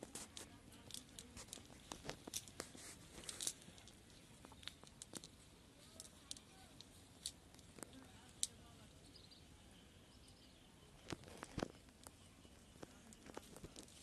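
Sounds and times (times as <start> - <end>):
net mesh rustling and clicking: 0.0 - 8.6.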